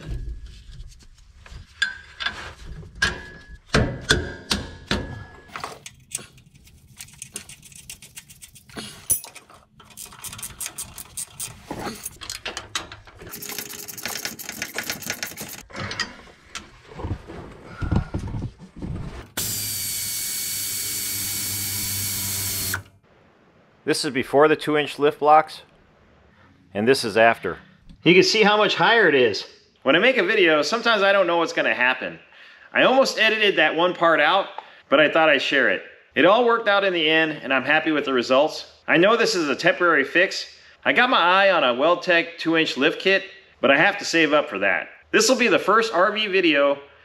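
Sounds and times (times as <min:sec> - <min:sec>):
ratchet clicking: 0:19.4 - 0:22.8
power tool running: 0:19.4 - 0:22.9.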